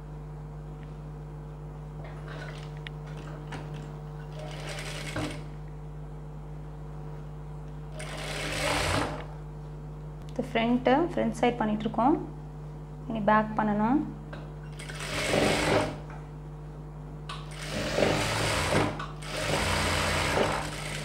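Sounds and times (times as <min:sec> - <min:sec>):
steady hum: 0:00.0 - 0:21.0
sewing machine stitching: 0:04.3 - 0:05.5, 0:08.0 - 0:09.3, 0:14.7 - 0:16.0, 0:17.5 - 0:21.0.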